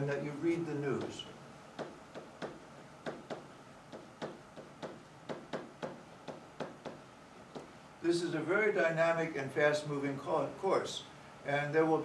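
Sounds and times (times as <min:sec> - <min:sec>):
pen tapping on whiteboard: 0:01.8 - 0:07.7.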